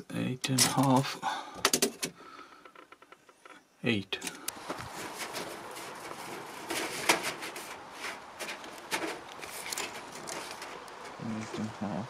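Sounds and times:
metal sheet and mesh crinkling: 4.3s - 11.7s.

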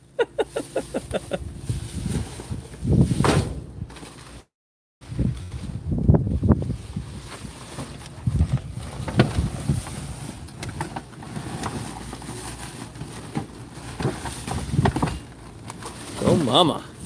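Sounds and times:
wind on microphone: 1.2s - 3.9s, 5.0s - 10.2s
cardboard scraping in metal dumpster: 1.6s - 4.5s, 5.1s - 17.0s.

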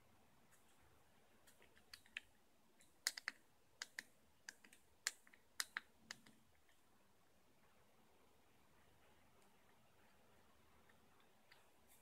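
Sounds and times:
fidget cube plastic clicks: 1.6s - 6.4s.

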